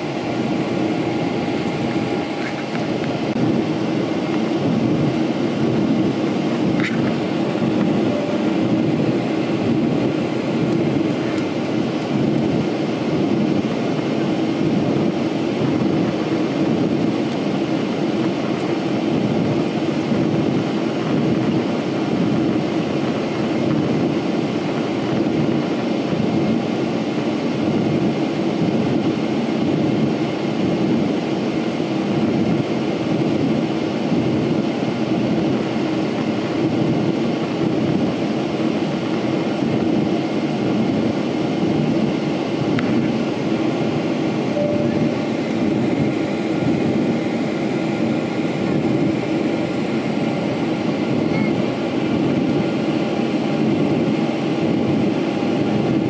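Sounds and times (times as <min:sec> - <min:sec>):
rushing air: 0:00.0 - 0:23.2
jet engine drone in cabin: 0:00.0 - 0:56.0.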